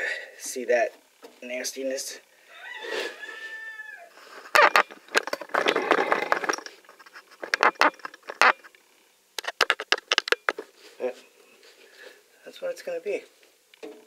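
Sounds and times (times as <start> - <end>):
plastic scraping: 4.4 - 8.7, 9.4 - 10.6
plastic clicks and knocks: 9.4 - 10.6.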